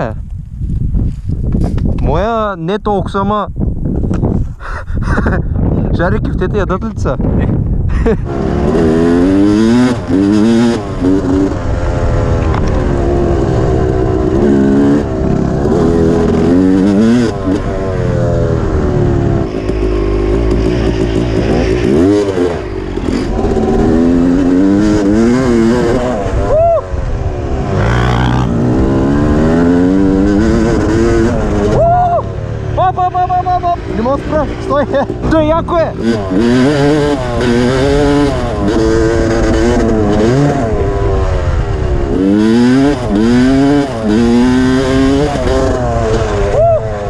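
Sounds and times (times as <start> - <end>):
dirt bike engine revving: 7.9 - 47.0.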